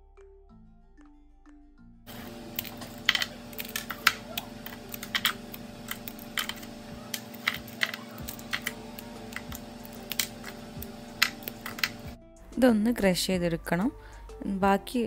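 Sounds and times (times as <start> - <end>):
brittle praline snapping: 2.1 - 12.2.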